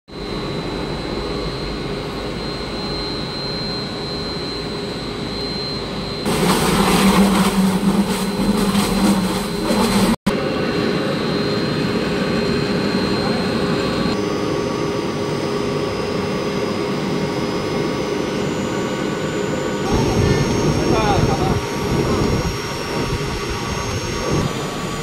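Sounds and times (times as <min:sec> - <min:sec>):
mixer motor drone and whine: 0:00.1 - 0:25.0
churning of mixed material: 0:06.3 - 0:10.2.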